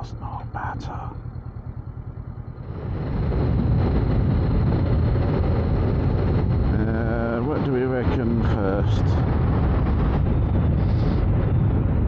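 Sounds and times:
motorcycle engine accelerating: 1.2 - 12.0
wind noise on microphone: 2.6 - 12.0.

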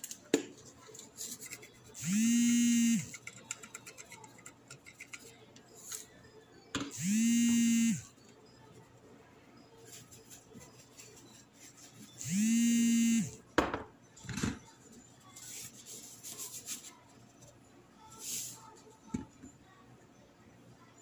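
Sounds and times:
plastic spice shaker rattling: 3.1 - 5.4.

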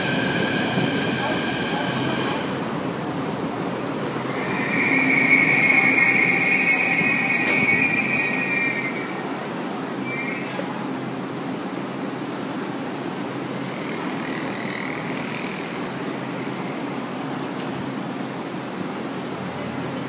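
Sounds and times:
metro train humming: 0.0 - 20.0
faint high whine: 4.2 - 9.3.

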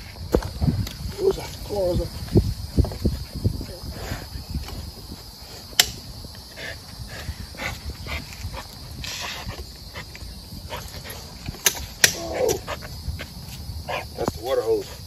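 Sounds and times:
sharp click: 5.8 - 6.0
paw scrapes on pavers: 7.6 - 10.1.

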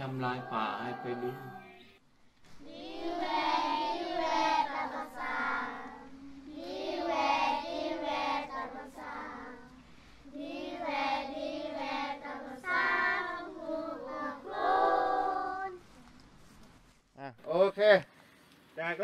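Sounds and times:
girls singing together: 0.0 - 2.0, 2.6 - 15.8.

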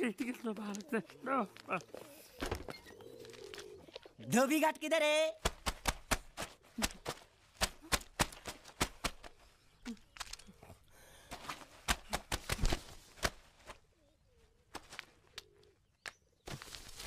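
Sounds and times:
wet clothes slapped on stone: 5.4 - 9.4, 11.8 - 13.8.

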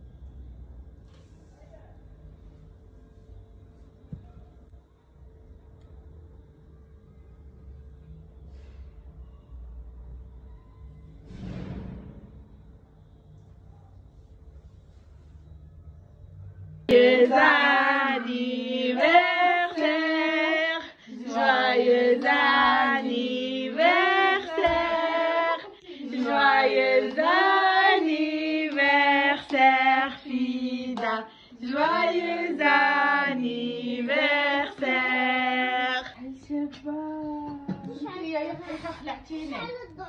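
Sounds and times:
high voice singing unaccompanied: 16.9 - 36.1.

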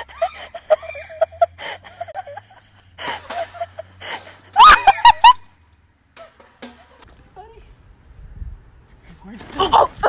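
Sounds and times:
person laughing breathily: 0.0 - 5.4.

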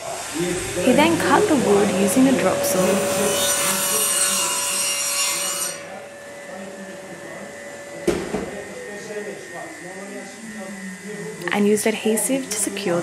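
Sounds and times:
electric saw cutting wood: 0.0 - 13.0
knock: 8.1 - 8.5.

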